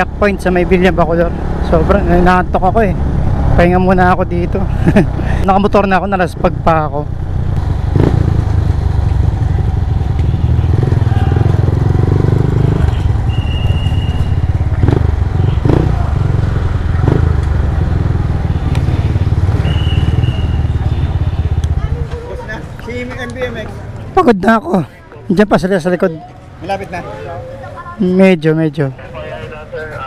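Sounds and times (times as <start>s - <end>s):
motorcycle engine running: 0.0s - 22.4s.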